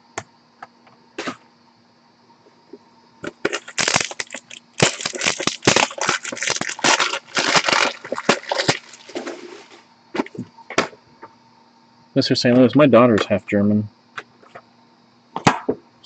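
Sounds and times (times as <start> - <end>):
plastic packaging crinkling: 3.5 - 9.8.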